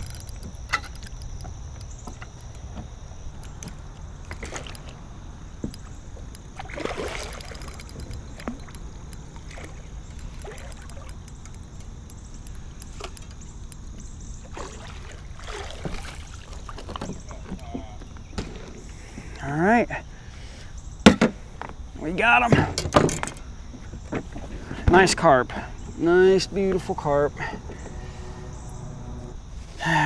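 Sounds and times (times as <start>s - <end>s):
fish splashing at surface: 6.6s - 8.7s, 14.5s - 17.0s
low steady rumble: 27.6s - 29.6s.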